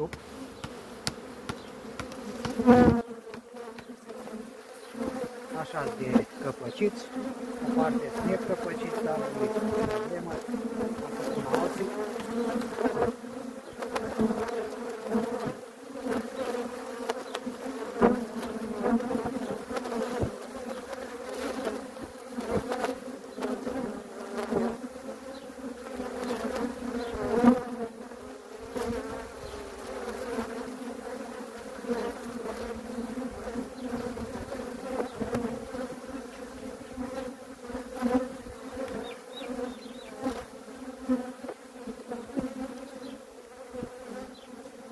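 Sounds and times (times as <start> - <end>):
honeybees buzzing: 0.0 - 44.9.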